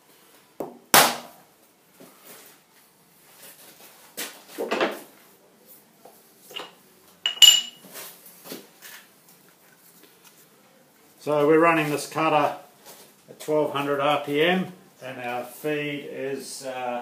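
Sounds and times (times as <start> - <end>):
metal clinks: 6.5 - 7.8.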